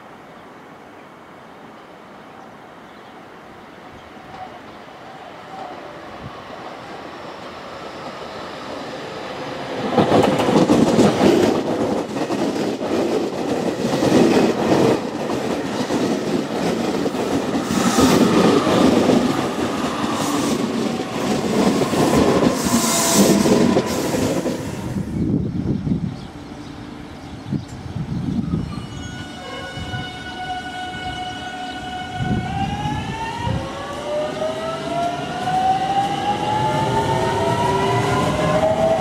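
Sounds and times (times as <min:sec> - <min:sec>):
train passing: 0:01.2 - 0:39.0
clickety-clack of rail joints: 0:09.4 - 0:24.7.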